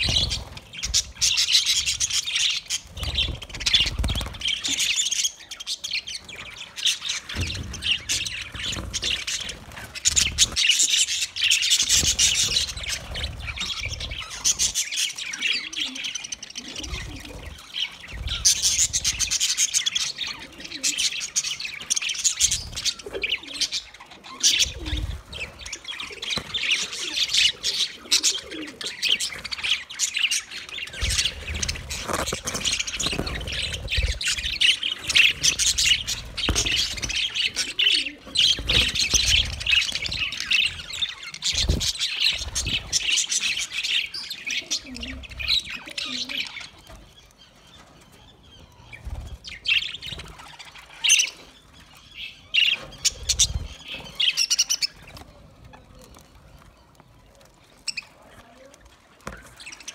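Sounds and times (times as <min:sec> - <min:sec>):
budgerigars chirping: 0:00.0 - 0:55.3.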